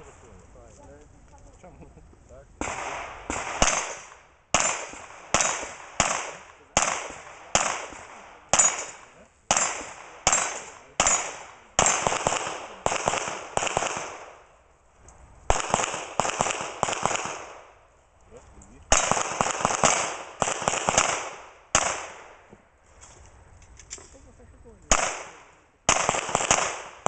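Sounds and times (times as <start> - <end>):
handgun shots with echo: 2.6 - 14.3, 24.9 - 27.0.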